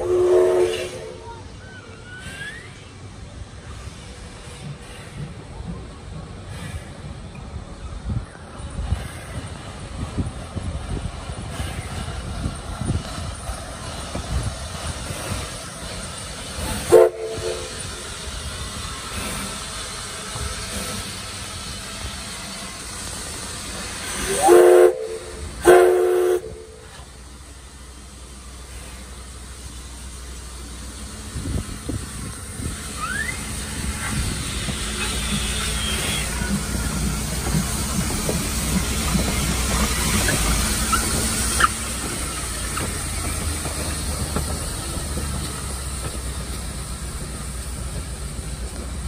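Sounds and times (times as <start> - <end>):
steam locomotive whistle blasts: 0.0 - 1.4, 16.8 - 18.0, 24.2 - 27.0, 33.0 - 33.6, 35.0 - 36.5
steam hissing: 0.0 - 49.0
steam locomotive rumbling: 0.0 - 49.0.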